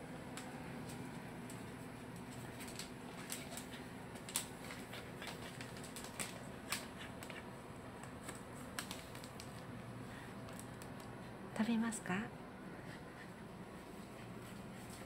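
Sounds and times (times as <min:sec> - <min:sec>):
dog chewing a treat: 0:00.9 - 0:09.6.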